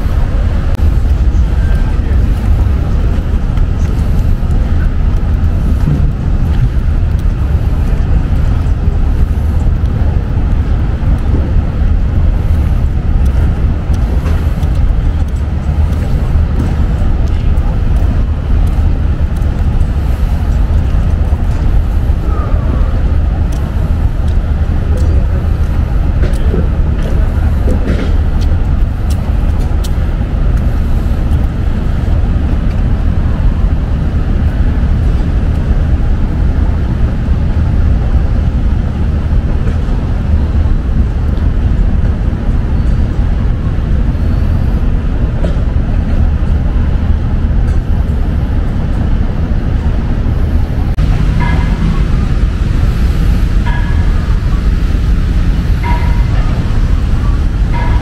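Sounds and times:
traffic rumble: 0.0 - 58.0.

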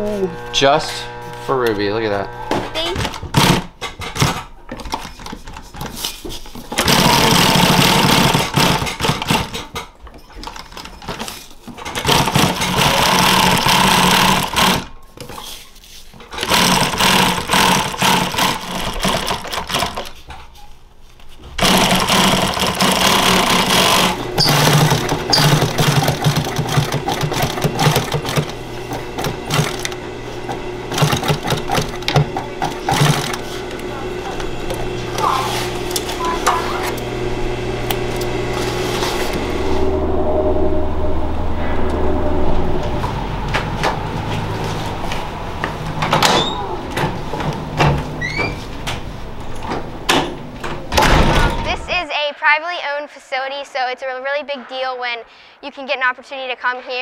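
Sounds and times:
industrial sewing machine stitching: 0.0 - 4.4, 6.7 - 9.8, 11.8 - 14.9, 16.3 - 20.1, 21.6 - 37.1.

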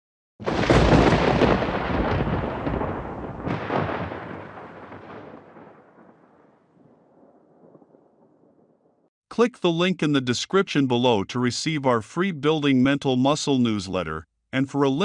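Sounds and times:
deep boom: 0.4 - 6.4.

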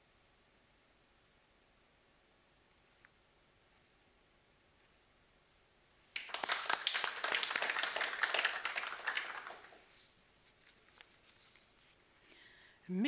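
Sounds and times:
people clapping: 6.1 - 10.0.

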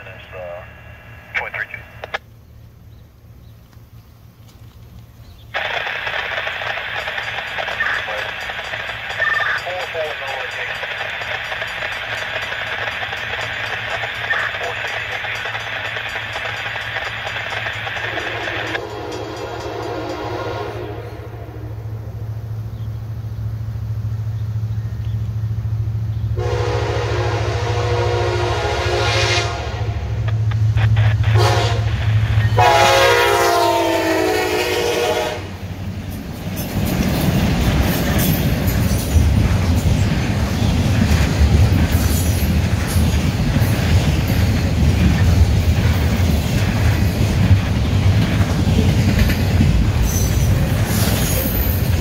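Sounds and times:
locomotive engines rumbling: 0.0 - 52.0
locomotive horn blasts: 18.4 - 21.9, 26.4 - 30.3, 31.3 - 35.6.

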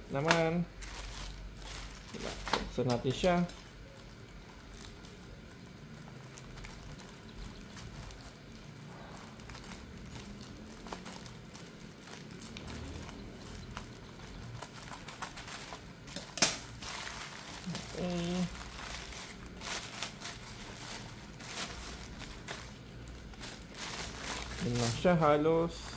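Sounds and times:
plastic bag rustling: 0.0 - 25.9
scissors snipping plastic: 14.6 - 16.8.

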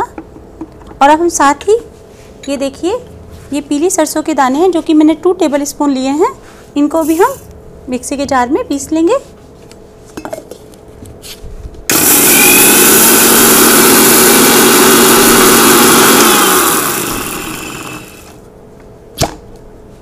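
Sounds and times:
mixer grinder motor grinding seeds: 11.9 - 18.4.

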